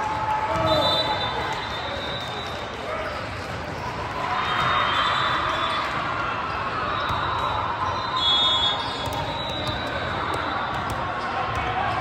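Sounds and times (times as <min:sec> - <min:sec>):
crowd chatter: 0:00.0 - 0:12.0
ball bouncing on court floor: 0:09.0 - 0:12.0.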